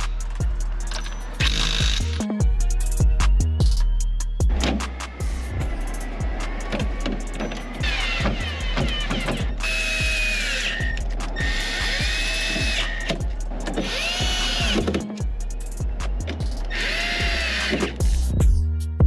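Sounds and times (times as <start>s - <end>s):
background music with a beat: 0.0s - 19.0s
cordless driver whining: 5.9s - 18.3s.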